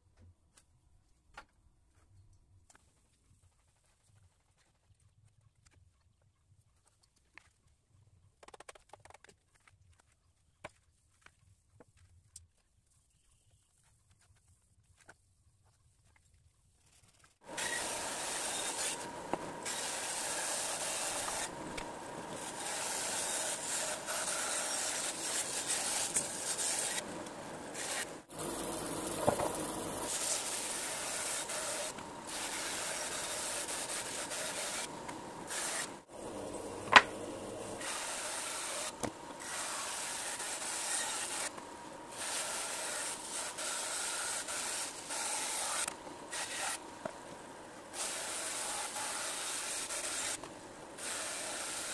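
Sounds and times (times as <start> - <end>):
band saw blade cutting wood: 17.4 - 47.1, 48.0 - 51.9
machine hum: 17.5 - 39.6.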